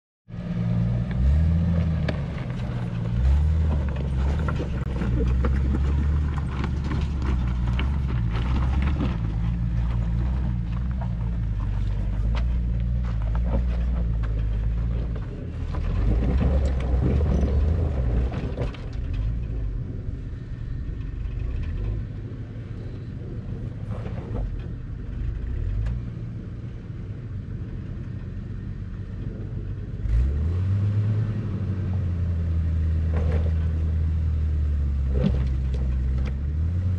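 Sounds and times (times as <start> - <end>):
gravel crackling under tyres: 0.3 - 36.9
off-road vehicle engine labouring: 0.3 - 36.9.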